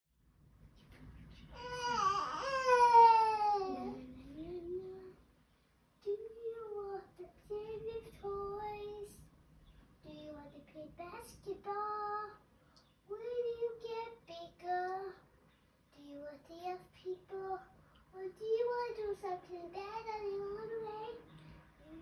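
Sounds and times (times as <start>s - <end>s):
child singing: 1.6s - 5.2s, 6.0s - 9.3s, 10.0s - 12.4s, 13.1s - 15.2s, 15.9s - 22.0s.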